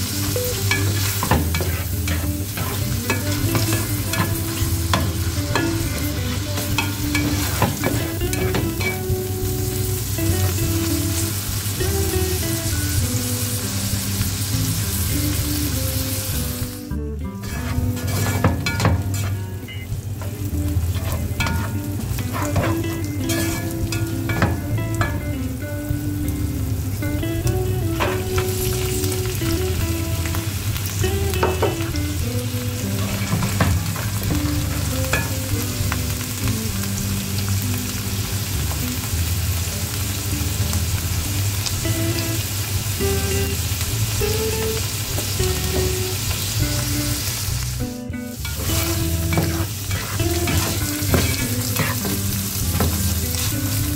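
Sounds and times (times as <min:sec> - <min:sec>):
food sizzling in a pan: 0:00.0 - 0:53.9
spatula scraping a pan: 0:00.6 - 0:09.0, 0:17.4 - 0:19.6, 0:20.8 - 0:25.2, 0:33.0 - 0:34.4, 0:48.4 - 0:53.9.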